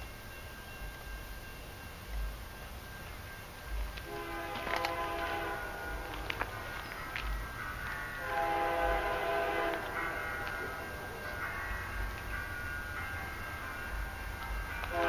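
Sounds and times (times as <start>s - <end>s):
distant locomotive air horn: 4.0s - 6.8s, 8.2s - 12.1s, 14.8s - 15.0s.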